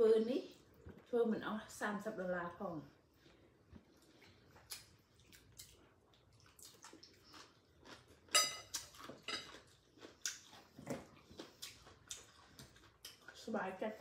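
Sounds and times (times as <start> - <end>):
person eating noodles: 3.2 - 13.3.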